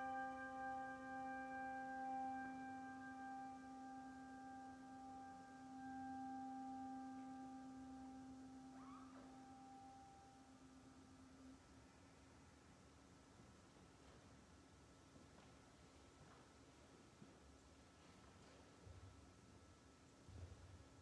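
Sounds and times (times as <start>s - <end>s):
ringing held chord: 0.0s - 12.2s
faint short chirp: 8.7s - 9.9s.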